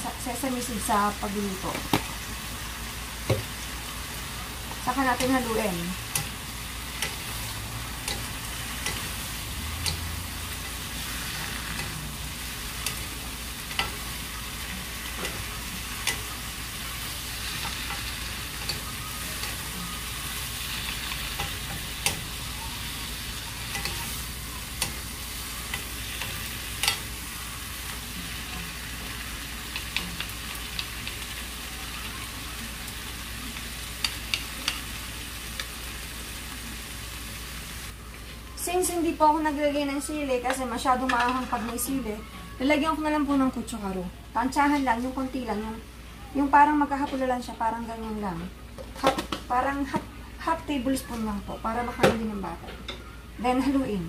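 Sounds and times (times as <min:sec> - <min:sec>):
vegetables sizzling in a frying pan: 0:00.0 - 0:54.0.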